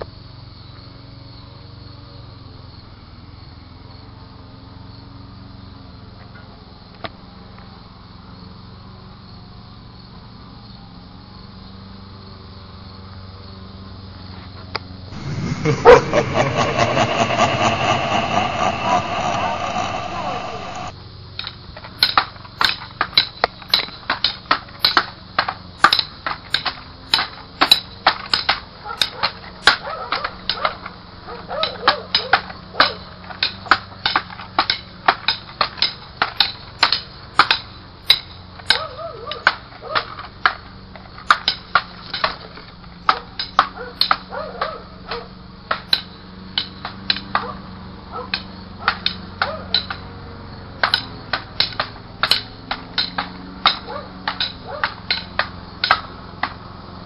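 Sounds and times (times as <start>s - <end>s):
toy swords clacking: 50.8s - 56.1s.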